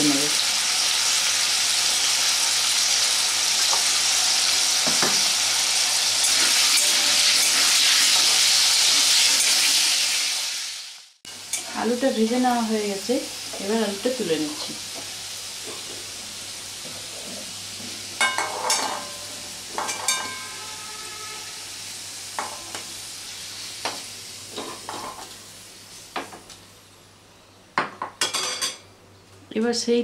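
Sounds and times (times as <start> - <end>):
hot oil sizzling: 0.0 - 27.0
metal spatula scraping a pan: 6.2 - 9.8, 18.2 - 19.2.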